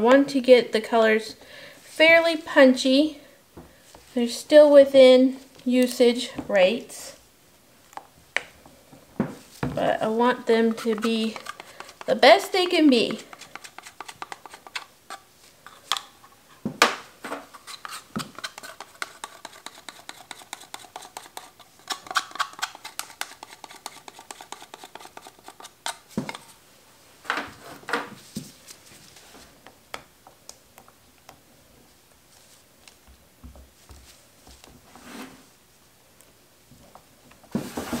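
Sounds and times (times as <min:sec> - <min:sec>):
spatula scraping plastic: 0:10.0 - 0:16.4, 0:17.4 - 0:26.6.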